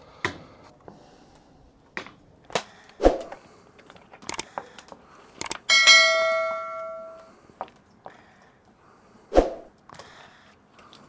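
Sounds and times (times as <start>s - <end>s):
metal pot ringing when struck: 5.7s - 7.2s.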